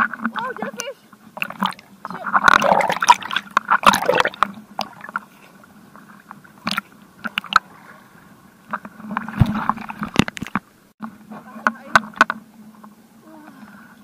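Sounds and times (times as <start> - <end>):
water splashing and sloshing: 0.0 - 13.0
faint steady hum: 0.0 - 14.0.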